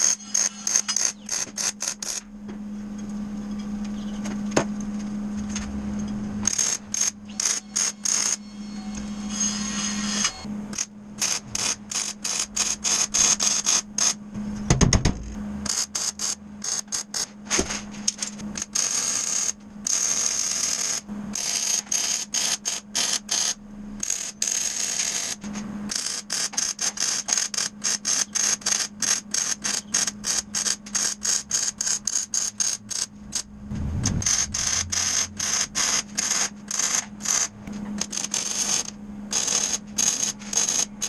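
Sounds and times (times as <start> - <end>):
arc welding crackling: 0.0 - 2.3, 9.2 - 14.2, 15.6 - 41.0
steady hum: 0.0 - 41.0.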